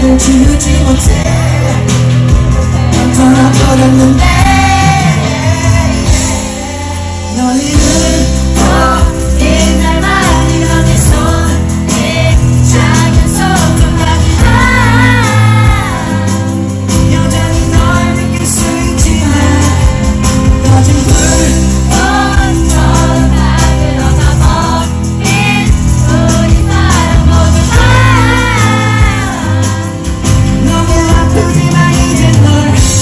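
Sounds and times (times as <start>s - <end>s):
singer's voice: 0.0s - 33.0s
heavy bass beat: 30.2s - 33.0s.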